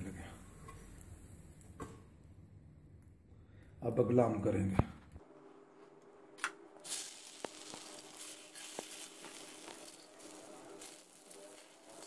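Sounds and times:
bread frying in oil sizzling: 6.8 - 12.0.

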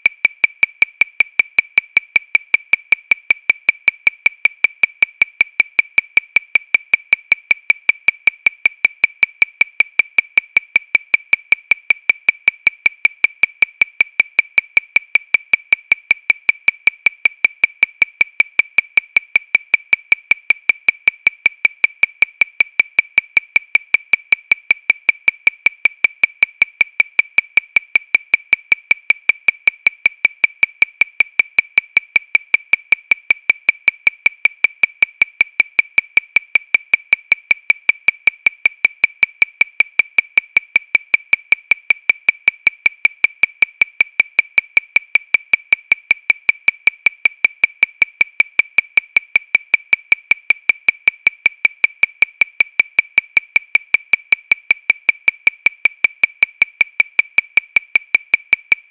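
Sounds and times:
metronome clicking: 0.0 - 58.9.

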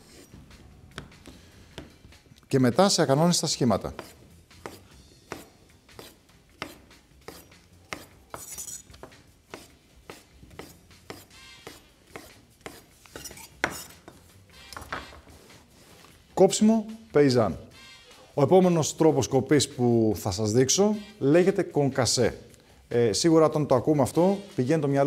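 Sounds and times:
knife chopping on wooden board: 3.9 - 14.2.

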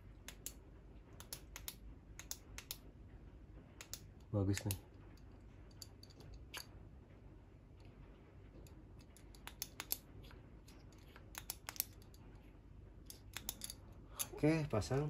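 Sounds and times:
metal flashlight clicks: 13.1 - 14.3.

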